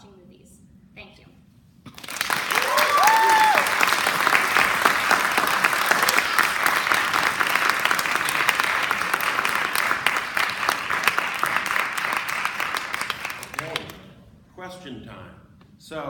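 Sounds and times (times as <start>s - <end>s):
audience applauding: 1.9s - 14.0s.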